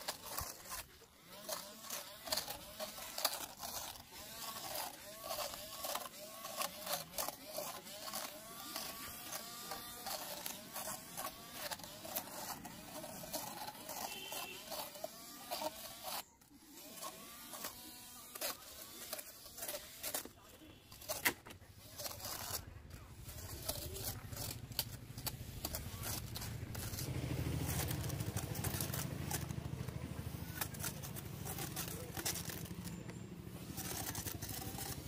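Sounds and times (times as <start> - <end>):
small motor whining: 0.0 - 35.0
blades striking stems: 17.2 - 35.0.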